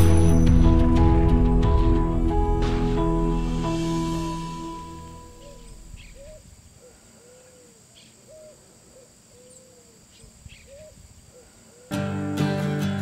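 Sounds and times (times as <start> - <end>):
background music: 0.0 - 6.0.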